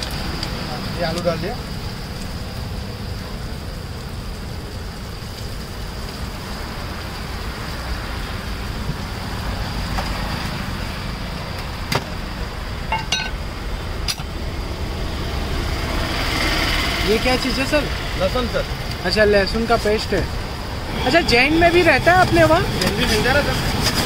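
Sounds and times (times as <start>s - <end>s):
road traffic rumble: 0.0s - 24.0s
vegetables simmering hiss: 0.0s - 24.0s
metal utensils clinking: 12.9s - 13.4s.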